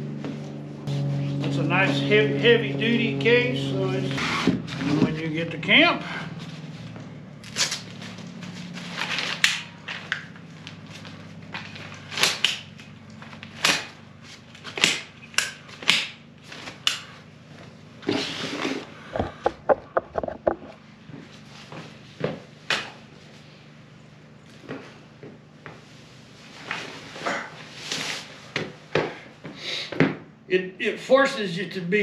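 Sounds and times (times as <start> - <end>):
chair frame knocking and clicking: 19.1 - 20.8.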